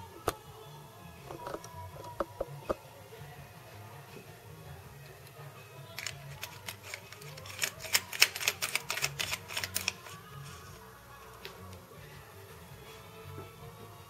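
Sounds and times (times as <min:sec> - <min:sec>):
bulb clicking and scraping in socket: 0:06.0 - 0:10.2.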